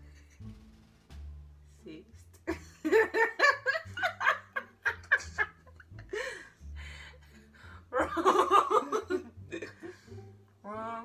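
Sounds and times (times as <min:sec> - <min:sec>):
women laughing: 0:02.5 - 0:06.4, 0:08.0 - 0:09.8.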